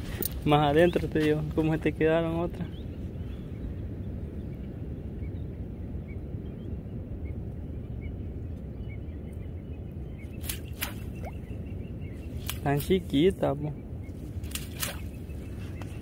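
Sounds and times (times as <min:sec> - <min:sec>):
steady low rumble: 0:00.0 - 0:16.0
faint bird chirps: 0:04.4 - 0:16.0.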